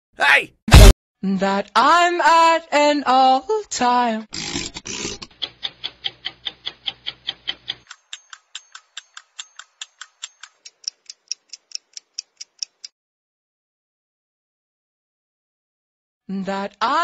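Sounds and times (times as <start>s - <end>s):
clock-like ticking: 5.3s - 12.9s.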